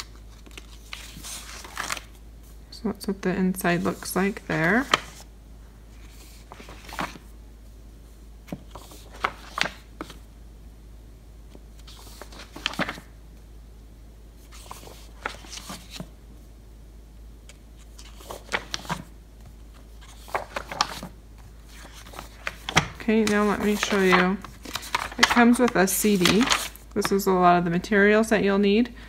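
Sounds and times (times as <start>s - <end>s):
paper pages turning: 0.0s - 2.2s, 3.8s - 5.3s, 6.0s - 7.3s, 8.5s - 10.2s, 11.7s - 13.1s, 14.4s - 16.1s, 17.5s - 27.1s.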